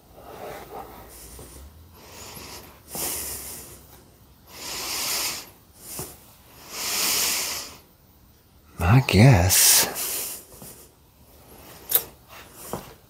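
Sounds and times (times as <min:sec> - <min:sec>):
person breathing heavily: 0:00.5 - 0:07.9.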